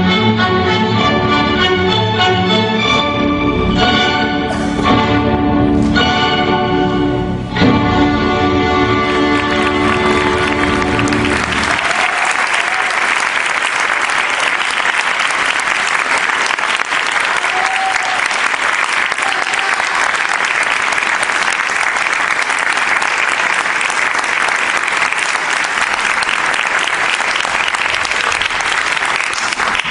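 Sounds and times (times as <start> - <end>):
audience applauding: 9.0 - 29.9.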